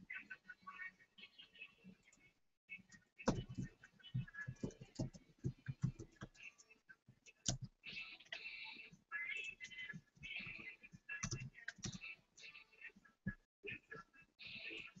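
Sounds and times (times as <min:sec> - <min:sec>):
computer keyboard typing: 0:03.2 - 0:06.5, 0:11.2 - 0:12.0.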